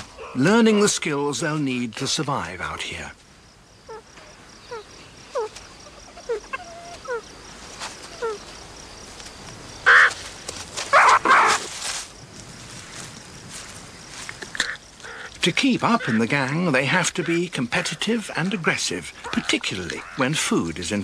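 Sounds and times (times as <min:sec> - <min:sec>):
meerkats peeping: 0:03.8 - 0:07.3, 0:08.0 - 0:08.5, 0:09.8 - 0:10.2, 0:10.9 - 0:11.7, 0:14.3 - 0:21.0
meerkats harsh calls: 0:03.9 - 0:07.3, 0:09.8 - 0:10.2, 0:10.9 - 0:11.7, 0:14.6 - 0:20.5.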